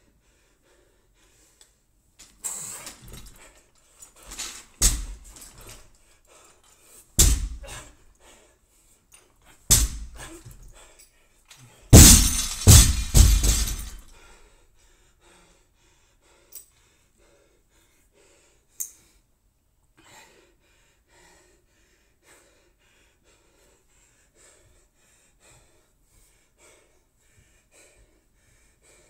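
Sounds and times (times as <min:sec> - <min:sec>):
barbell bouncing and rattling: 0:04.3 - 0:05.7, 0:07.2 - 0:07.8, 0:09.7 - 0:10.3, 0:11.9 - 0:14.1
barbell dropped on gym floor: 0:12.0 - 0:14.0.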